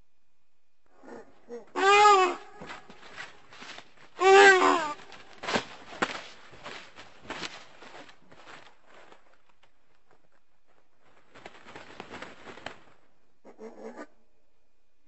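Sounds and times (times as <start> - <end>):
crackling rustles: 2.1 - 13.3.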